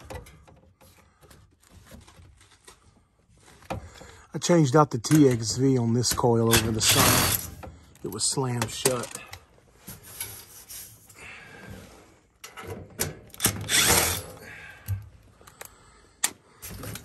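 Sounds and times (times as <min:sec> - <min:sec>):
cordless drill whirring: 0:13.4 - 0:14.2.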